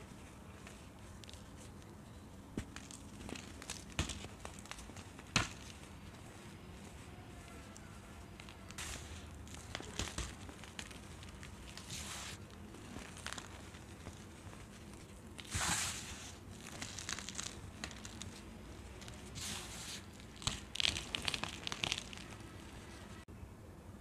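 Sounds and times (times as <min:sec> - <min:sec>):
baking soda crunching: 0:00.0 - 0:23.3
powder sifting hiss: 0:05.6 - 0:23.2.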